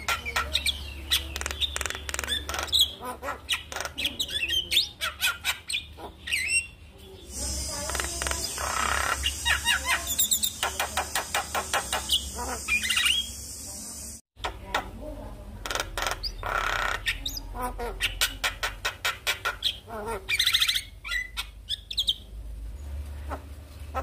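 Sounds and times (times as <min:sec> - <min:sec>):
bird singing clicks and whistles: 0:00.0 - 0:02.8, 0:07.8 - 0:13.3
steady high hiss: 0:07.3 - 0:14.2.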